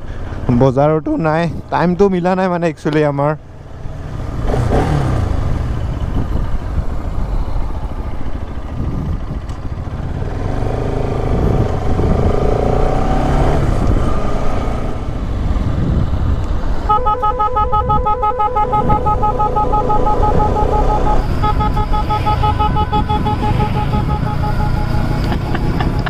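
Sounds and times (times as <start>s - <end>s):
wind and road noise: 0.0s - 26.0s
motorcycle engine running: 3.5s - 12.9s, 15.1s - 26.0s
pulsing multi-tone horn blaring: 16.8s - 25.8s.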